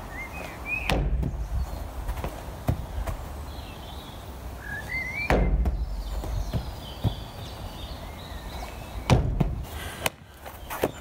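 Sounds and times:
bird chirping: 0.0s - 11.0s
ball striking wooden wall: 0.9s - 1.5s, 5.3s - 7.3s, 9.1s - 9.6s.

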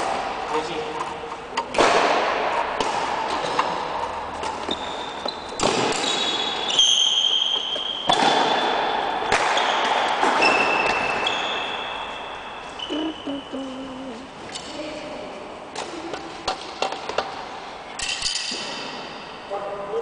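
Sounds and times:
racket hitting shuttlecock: 0.0s - 11.8s
shoes squeaking on floor: 4.2s - 8.6s, 9.6s - 13.8s.

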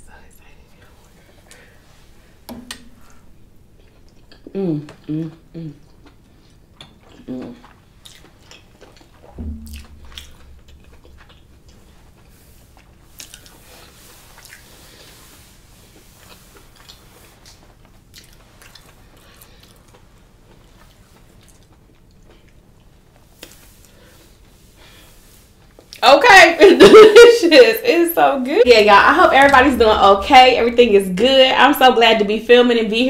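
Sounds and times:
person chewing food: 3.8s - 13.7s, 15.9s - 24.4s
low thump: 9.4s - 11.8s, 29.1s - 31.6s.

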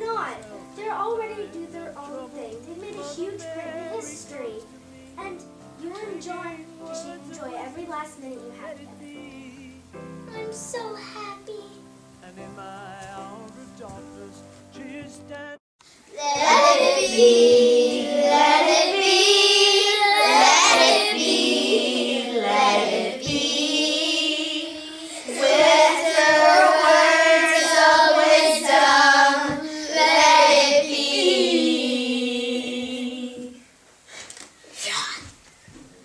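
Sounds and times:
girls singing together: 1.2s - 5.4s, 16.1s - 33.7s.

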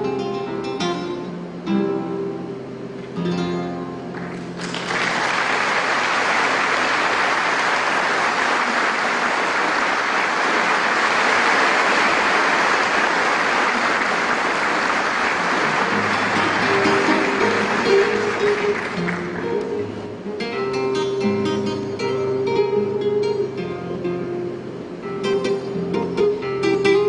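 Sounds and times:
acoustic guitar plucking: 0.0s - 4.6s, 15.3s - 27.0s
audience applause: 4.1s - 20.0s.

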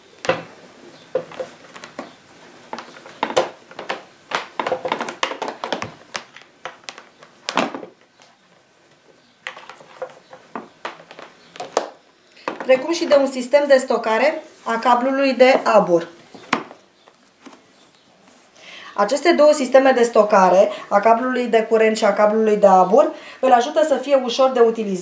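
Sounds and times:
power cord rustling: 0.0s - 18.1s
plastic clicks and knocks: 2.7s - 8.4s.

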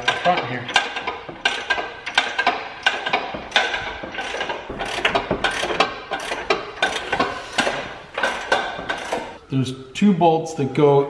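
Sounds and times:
ratchet wrench clicking: 0.0s - 9.3s.

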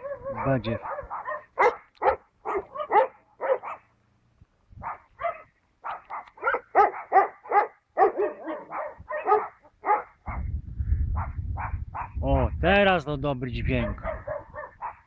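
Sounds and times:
dog barking: 0.0s - 3.9s, 4.8s - 10.5s, 11.2s - 12.2s, 13.8s - 15.0s.

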